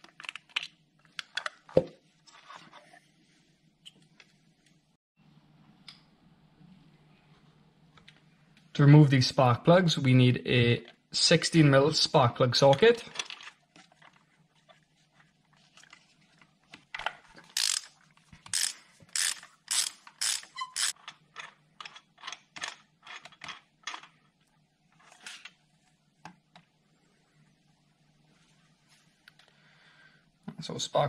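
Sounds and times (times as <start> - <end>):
hand ratchet clicking: 17.5 - 21.0.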